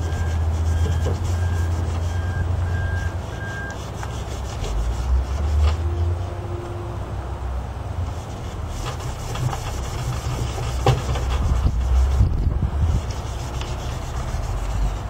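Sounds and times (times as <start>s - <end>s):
sharp scrape: 0.0s - 6.2s, 8.0s - 15.0s
low rumble: 11.3s - 15.0s.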